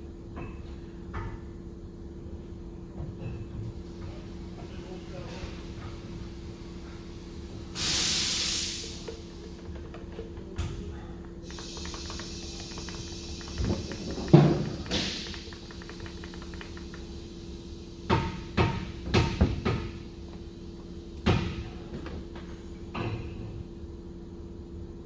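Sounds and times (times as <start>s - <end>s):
steady low hum: 0.0s - 25.0s
knocks and clicks of hands working: 9.0s - 17.2s.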